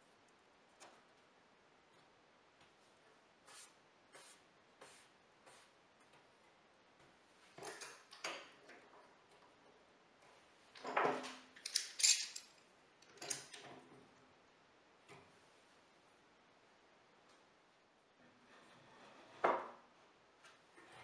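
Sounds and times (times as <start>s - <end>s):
metal clamps clanking and clicking: 10.8s - 12.5s.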